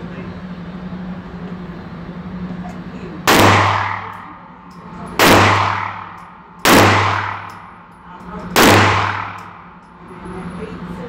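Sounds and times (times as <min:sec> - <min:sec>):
echoing gunshots indoors: 0:03.3 - 0:04.4, 0:05.2 - 0:09.9.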